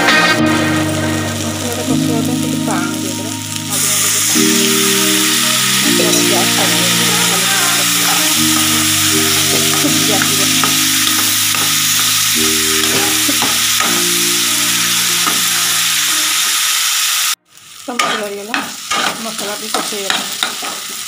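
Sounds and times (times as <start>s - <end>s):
masala sizzling in oil: 0.0s - 21.0s
metal spatula scraping pan: 18.0s - 20.8s.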